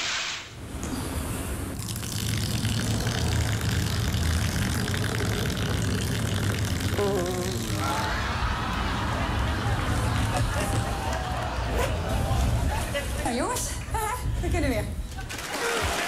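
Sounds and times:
long low fart: 1.8 - 7.8.

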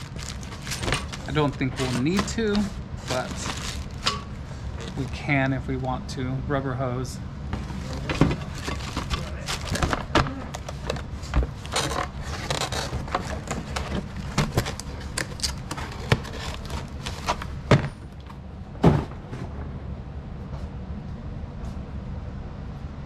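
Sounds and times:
cardboard scraping and rustling: 0.0 - 4.1, 7.6 - 18.1
steady low hum: 0.0 - 23.0.

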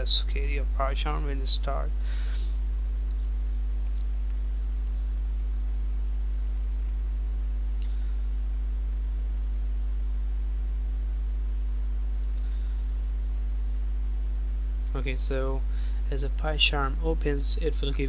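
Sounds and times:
low electrical mains hum: 0.0 - 18.0.

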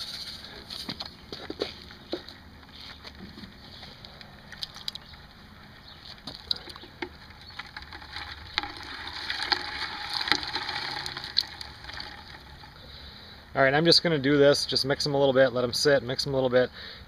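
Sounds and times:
crayfish clicking and knocking: 4.4 - 5.2, 6.1 - 12.8
water sloshing in a bucket: 6.2 - 13.0.

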